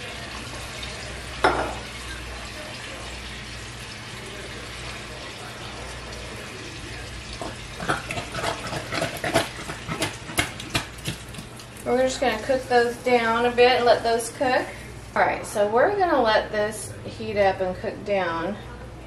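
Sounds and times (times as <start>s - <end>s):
potatoes plopping into hot oil: 7.3s - 12.5s.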